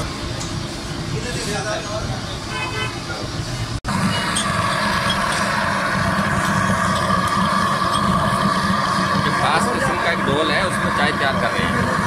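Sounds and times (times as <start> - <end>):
gas burner rushing: 3.1 - 12.0.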